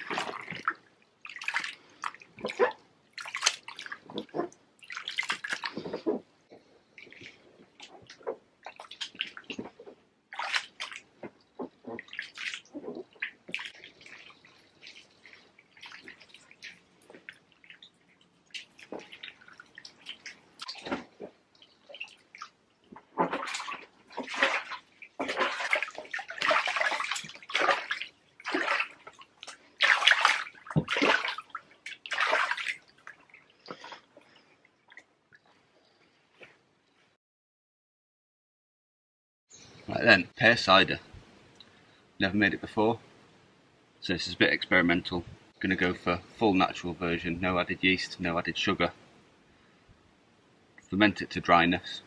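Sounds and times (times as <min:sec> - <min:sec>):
feet squelching grapes in a tub: 0:00.0 - 0:35.7.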